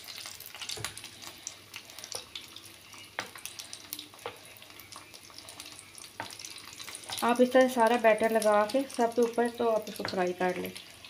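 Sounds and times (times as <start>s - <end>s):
chicken deep-frying in oil: 0.0s - 11.0s.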